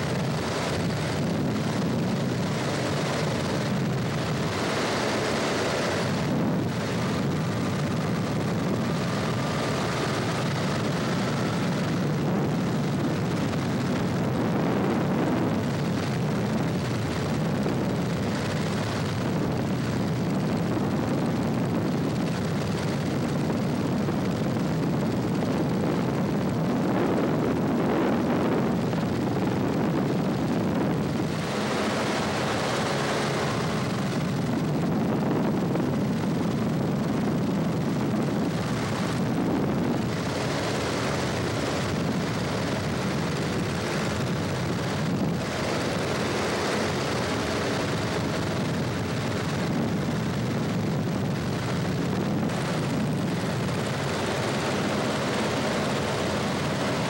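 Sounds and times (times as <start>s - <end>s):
propeller engine droning: 0.0s - 57.0s.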